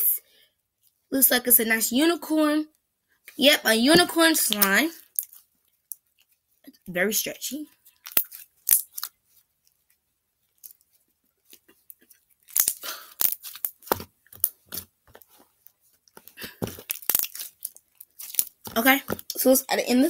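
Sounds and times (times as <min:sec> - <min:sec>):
slime squishing and popping: 0:08.0 - 0:09.2, 0:12.4 - 0:14.9, 0:16.2 - 0:19.4.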